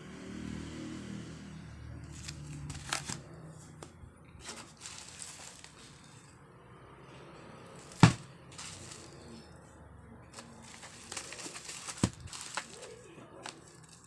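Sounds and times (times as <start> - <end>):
plastic wrap crinkling: 4.4 - 6.0, 7.8 - 9.4, 10.4 - 14.0.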